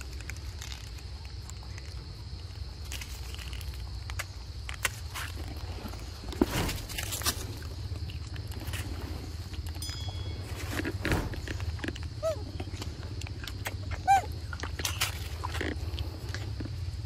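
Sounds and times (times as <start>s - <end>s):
steady low rumble: 5.4s - 17.0s.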